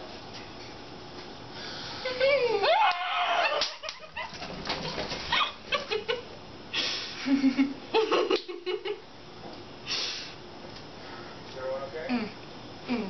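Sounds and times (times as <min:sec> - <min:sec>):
women squealing and laughing: 0:02.0 - 0:04.4.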